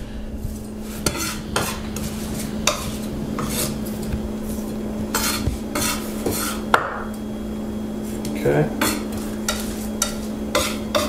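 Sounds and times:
knife scraping garlic on board: 0.8s - 3.8s, 5.1s - 6.6s, 8.8s - 11.0s.

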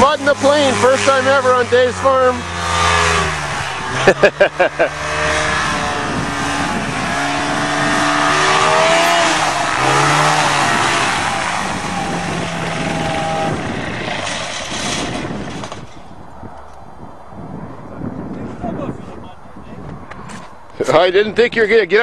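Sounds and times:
propeller plane engine at high power: 0.1s - 16.1s.

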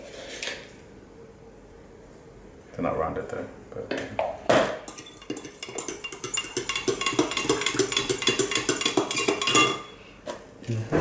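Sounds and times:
spoon clinking in ceramic mug: 4.9s - 10.0s.

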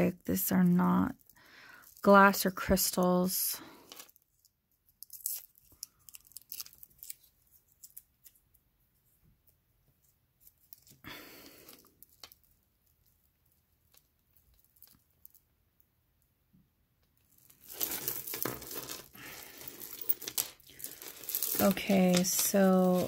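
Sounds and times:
plastic beads and chain clicking: 0.4s - 3.0s, 3.6s - 8.3s, 10.5s - 15.4s, 17.2s - 23.0s.

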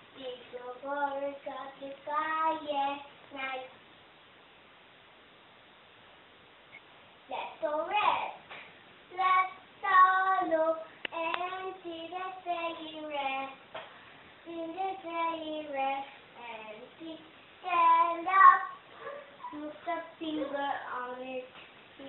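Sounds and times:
girl singing unaccompanied: 0.0s - 3.8s, 7.3s - 8.5s, 9.1s - 13.8s, 14.4s - 22.0s.

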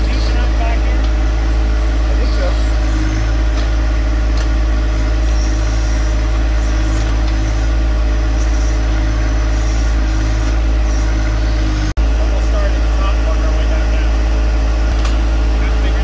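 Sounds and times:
backhoe digging: 0.0s - 12.0s
tractor diesel engine running: 0.0s - 16.0s.

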